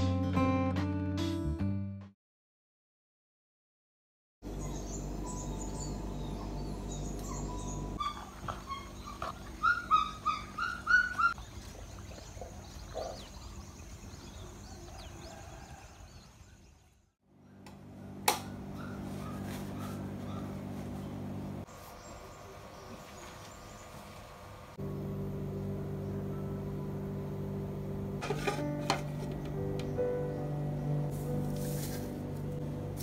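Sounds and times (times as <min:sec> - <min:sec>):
birds chirping and calling: 0:04.5 - 0:21.3
steady low hum: 0:17.3 - 0:33.0.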